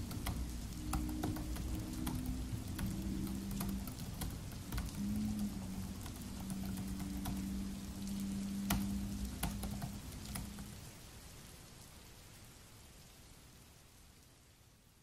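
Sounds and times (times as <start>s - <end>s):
laptop keyboard typing: 0.0s - 10.8s
low steady hum: 0.0s - 12.2s
steady rain: 0.0s - 15.0s.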